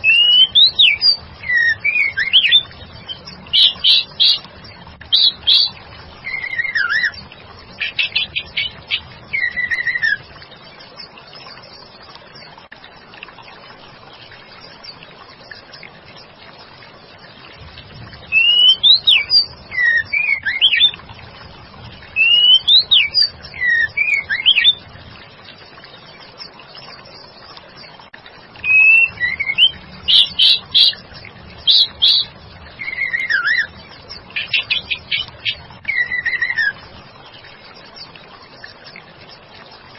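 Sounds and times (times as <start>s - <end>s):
bird singing whistled phrases: 0.0s - 4.4s, 5.2s - 7.2s, 7.9s - 10.2s, 18.3s - 21.0s, 22.2s - 24.8s, 28.6s - 31.0s, 31.6s - 33.7s, 34.4s - 36.8s.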